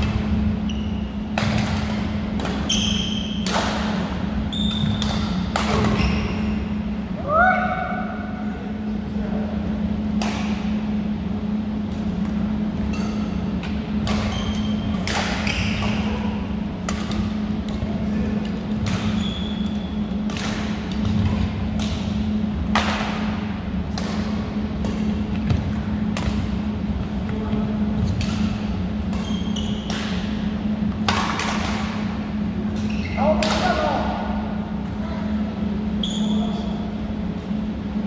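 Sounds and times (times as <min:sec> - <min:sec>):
steady low hum: 0:00.0 - 0:38.0
rackets hitting shuttlecock: 0:01.3 - 0:06.0, 0:10.1 - 0:10.8, 0:11.8 - 0:16.2, 0:16.8 - 0:17.8, 0:18.7 - 0:19.2, 0:20.1 - 0:26.7, 0:28.0 - 0:33.9.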